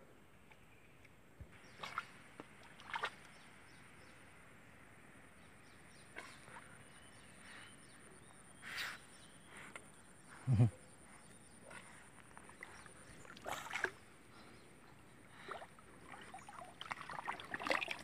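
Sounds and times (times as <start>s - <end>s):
river ambience: 0.0s - 18.0s
water splashes: 1.6s - 3.4s, 11.7s - 14.1s, 15.3s - 18.0s
faint bird chirps: 5.4s - 16.7s.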